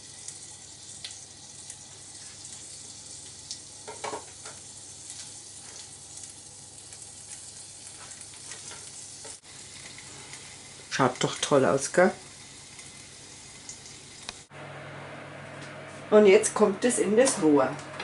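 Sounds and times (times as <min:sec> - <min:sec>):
hot oil sizzling in a pan: 0:00.0 - 0:14.6
small crackles: 0:04.4 - 0:11.5, 0:12.2 - 0:14.5.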